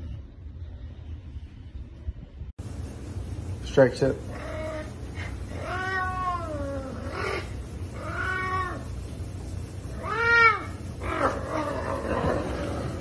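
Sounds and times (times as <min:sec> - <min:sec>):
cat meowing loudly: 0:05.6 - 0:07.1, 0:08.0 - 0:08.9.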